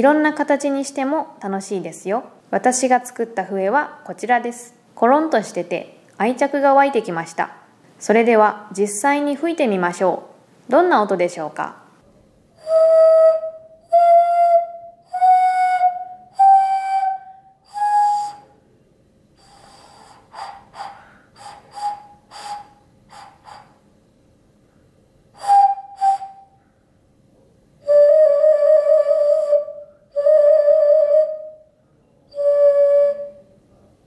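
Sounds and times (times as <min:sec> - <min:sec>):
breathy flute toots: 0:12.6 - 0:18.6, 0:19.4 - 0:23.8, 0:25.4 - 0:26.7, 0:27.8 - 0:31.7
clay vessel flute notes: 0:12.6 - 0:18.6, 0:19.4 - 0:23.8, 0:25.4 - 0:26.6, 0:27.8 - 0:33.6.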